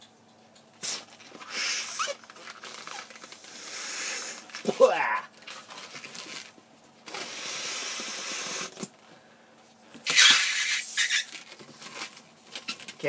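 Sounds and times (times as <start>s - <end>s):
air rushing into balloons: 0.8s - 4.5s, 7.1s - 8.8s, 10.1s - 11.3s.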